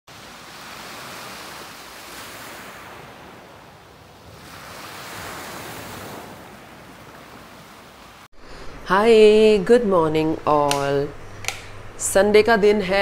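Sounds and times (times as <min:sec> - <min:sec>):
sea surf on pebble shore: 0:00.1 - 0:09.1.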